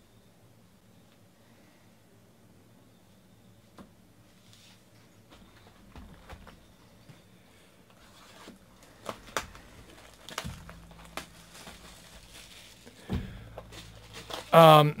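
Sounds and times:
plastic wrapper tearing and crinkling: 0:08.2 - 0:14.6.

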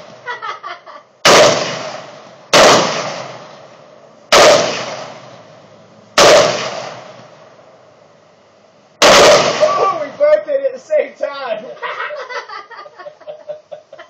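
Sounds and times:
rifle shots with echo: 0:01.2 - 0:03.7, 0:04.3 - 0:05.4, 0:06.2 - 0:07.4, 0:09.0 - 0:10.2.

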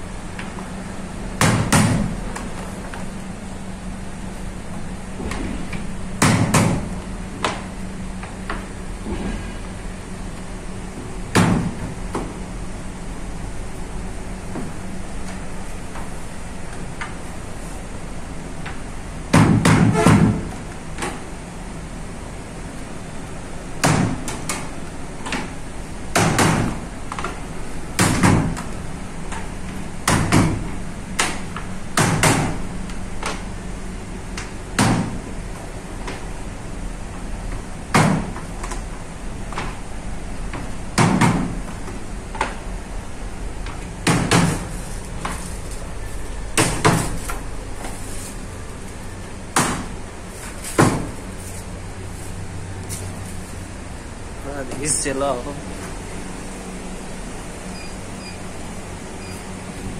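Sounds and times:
low machinery hum: 0:00.0 - 0:59.9.

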